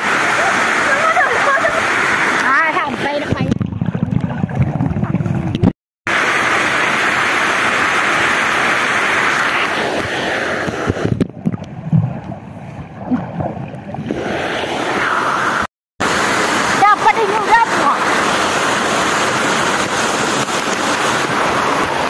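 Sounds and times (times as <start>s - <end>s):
waterfall rushing: 0.0s - 3.3s, 6.1s - 11.0s, 14.1s - 22.0s
muffled underwater sloshing: 2.4s - 5.7s.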